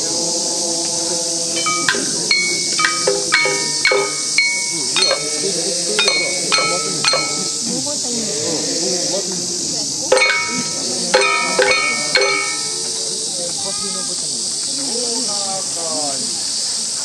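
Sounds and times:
steady high hiss: 0:00.0 - 0:17.0
voices chanting: 0:00.0 - 0:17.0
small metal gongs struck: 0:01.6 - 0:07.6, 0:10.1 - 0:12.8.

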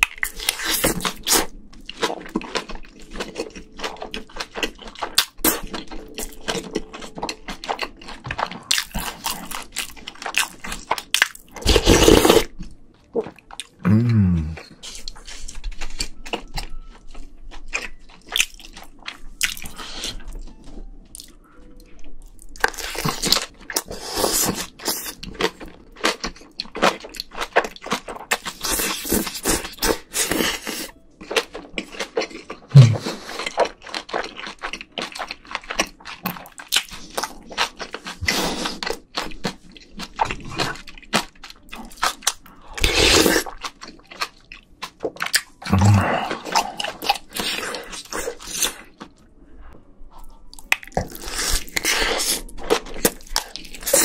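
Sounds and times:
close chewing with wet smacks: 0:00.0 - 0:11.5, 0:22.5 - 0:45.7.

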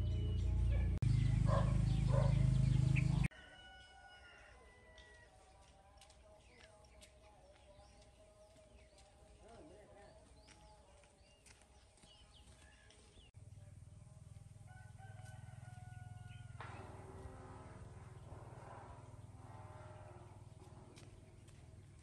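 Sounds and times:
small birds chirping: 0:00.0 - 0:03.3, 0:05.5 - 0:14.2
faint rooster crowing: 0:03.3 - 0:05.6, 0:14.6 - 0:17.0.

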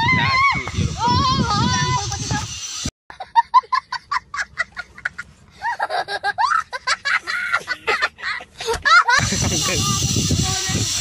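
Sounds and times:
young child laughing: 0:03.1 - 0:10.0.

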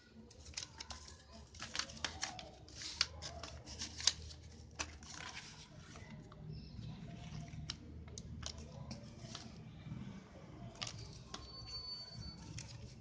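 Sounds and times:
card rustling: 0:00.2 - 0:09.7, 0:10.7 - 0:13.0
cards tapping and clicking: 0:00.3 - 0:06.4, 0:07.1 - 0:09.6.

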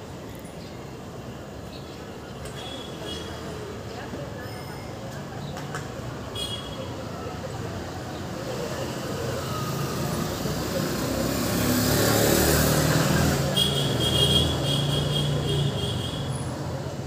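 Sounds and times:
vehicle passing close: 0:09.8 - 0:13.6.

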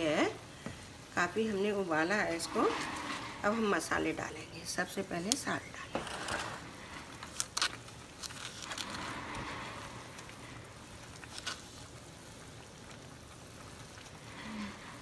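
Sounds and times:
gravy simmering and bubbling: 0:00.0 - 0:15.0
wooden spoon stirring: 0:01.4 - 0:11.8.

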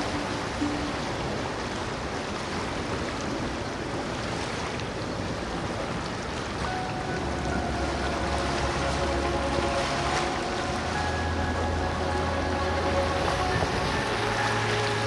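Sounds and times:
faint steady tones: 0:00.0 - 0:02.2, 0:06.6 - 0:15.0
wind: 0:00.0 - 0:15.0.

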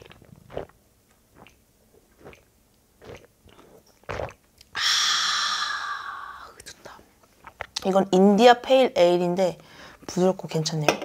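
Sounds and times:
person gulping beer: 0:00.0 - 0:04.8
breathy ahh: 0:04.7 - 0:06.6.

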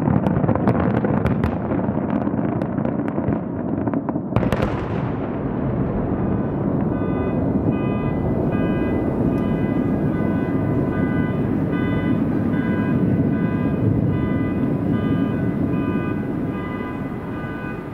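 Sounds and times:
steady low rumble: 0:04.7 - 0:17.9
repeating electronic bell signal: 0:06.9 - 0:17.9.

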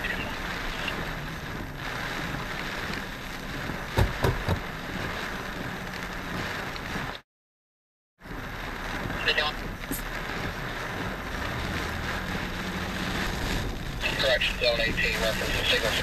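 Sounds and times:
rain and wind inside a car: 0:00.0 - 0:07.2, 0:08.2 - 0:16.0
quick knocks: 0:04.0 - 0:04.6.

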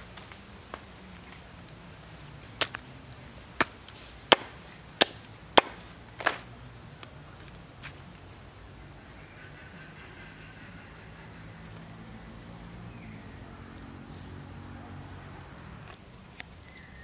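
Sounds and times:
knife chopping on wooden board: 0:04.3 - 0:06.4.

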